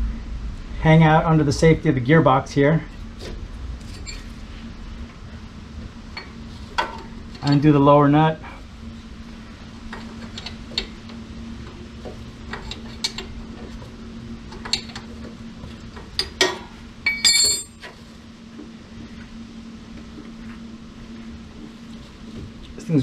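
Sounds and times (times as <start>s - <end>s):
steady low hum: 0.0s - 23.0s
wrench clanking on concrete: 16.2s - 17.9s.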